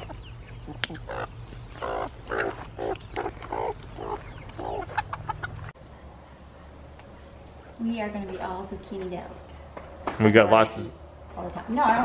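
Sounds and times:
hens clucking: 0:00.0 - 0:05.8.

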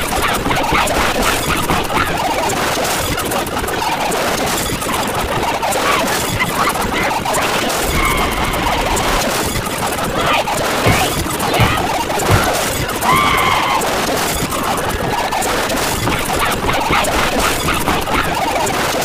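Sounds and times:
squeals: 0:07.5 - 0:14.6
snatches of voices: 0:10.1 - 0:13.9
snatches of music: 0:10.8 - 0:12.9
heavy thumps: 0:10.8 - 0:13.0.

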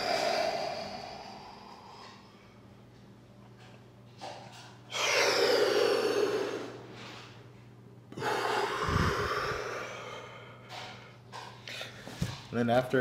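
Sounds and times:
person breathing deeply: 0:00.0 - 0:02.6, 0:05.0 - 0:07.2, 0:08.1 - 0:12.2.

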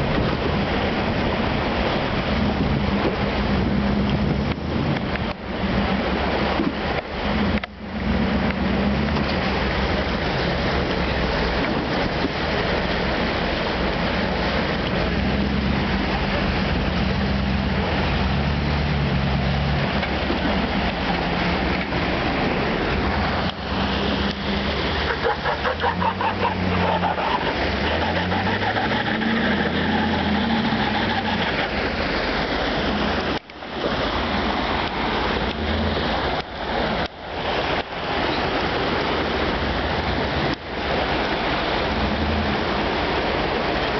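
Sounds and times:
fast creek water rushing: 0:00.0 - 0:43.9
truck engine revving: 0:07.2 - 0:33.4.

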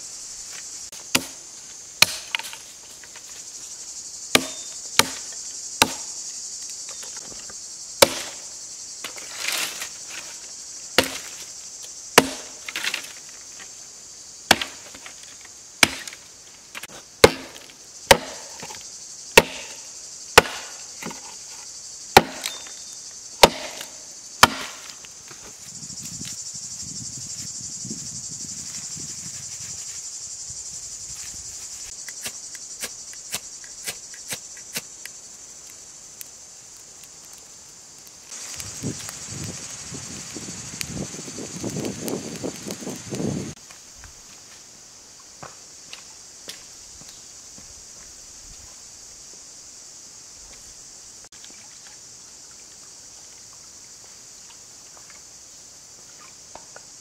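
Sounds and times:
insects buzzing: 0:00.0 - 0:57.0
blade chopping wood: 0:01.0 - 0:01.4, 0:02.0 - 0:02.6, 0:04.3 - 0:06.1, 0:08.0 - 0:08.4, 0:11.0 - 0:11.4, 0:12.2 - 0:13.1, 0:14.5 - 0:15.1, 0:15.8 - 0:16.2, 0:16.8 - 0:18.8, 0:19.4 - 0:19.8, 0:20.4 - 0:21.3, 0:22.2 - 0:22.7, 0:23.4 - 0:25.0.

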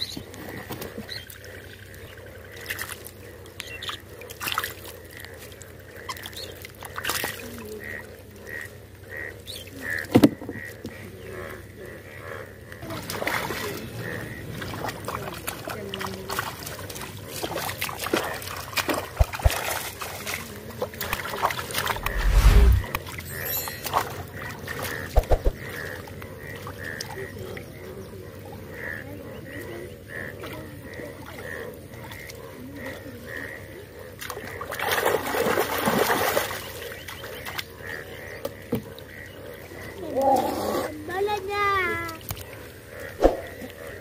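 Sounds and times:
frogs calling: 0:00.0 - 0:44.0
hands splashing in shallow water: 0:16.3 - 0:23.0
low thumps: 0:21.9 - 0:23.0.

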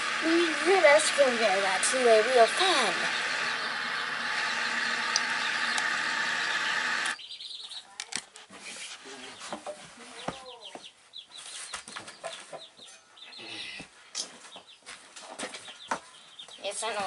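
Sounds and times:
white noise machine hiss: 0:00.0 - 0:07.2
baby chicks peeping: 0:00.4 - 0:17.0
sharp clicks: 0:05.1 - 0:06.0.

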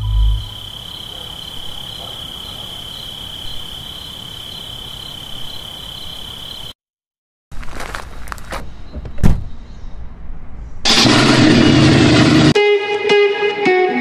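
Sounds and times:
insect trilling: 0:00.0 - 0:06.8.

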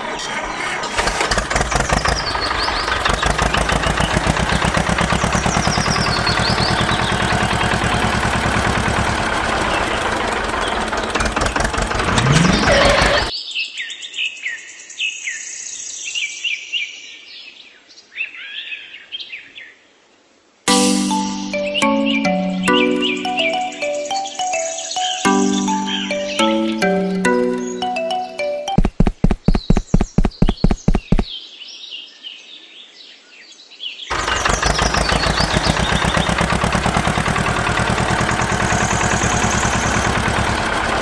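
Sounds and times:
tractor engine chugging: 0:00.0 - 0:13.3, 0:34.1 - 0:41.0
birds chirping: 0:01.5 - 0:13.3, 0:20.7 - 0:31.4, 0:34.1 - 0:41.0.

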